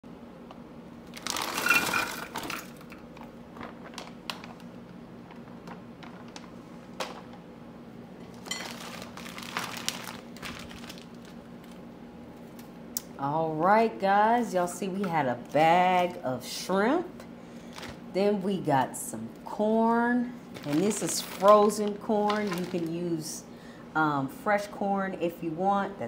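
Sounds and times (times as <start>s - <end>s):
plastic bag crinkling: 1.0s - 7.4s, 8.3s - 12.6s, 17.6s - 18.1s, 20.4s - 23.3s.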